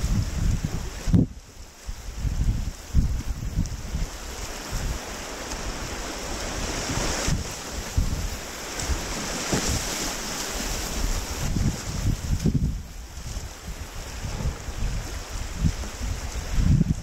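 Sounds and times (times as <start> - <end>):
wind buffeting microphone: 0.0 - 17.0
whitewater rapids rushing: 4.0 - 12.4.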